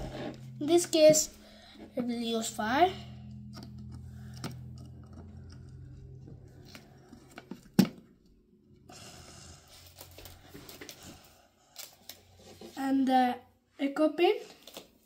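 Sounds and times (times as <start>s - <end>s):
low steady hum: 0.0s - 13.8s
wires clicking and rustling: 3.3s - 8.3s.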